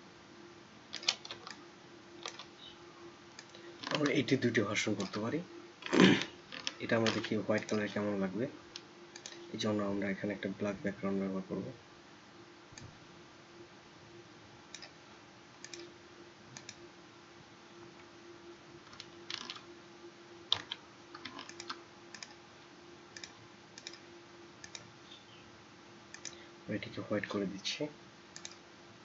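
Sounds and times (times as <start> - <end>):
faint electrical hum: 0.0 - 29.0
mouse and keyboard clicks: 2.2 - 2.5, 20.5 - 22.4, 28.4 - 28.6.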